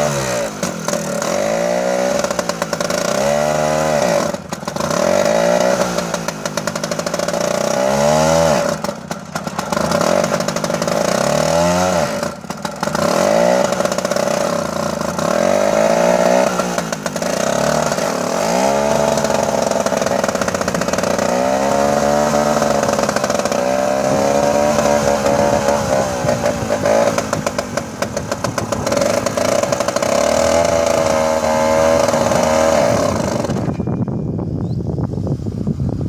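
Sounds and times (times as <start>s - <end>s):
diesel engine revving: 0.0s - 34.1s.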